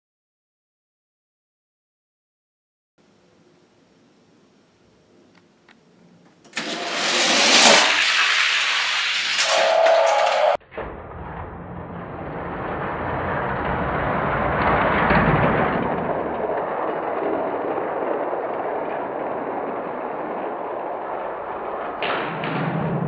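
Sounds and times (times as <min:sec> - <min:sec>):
toy cars rolling on plastic track: 0:06.5 - 0:10.6, 0:12.2 - 0:23.0.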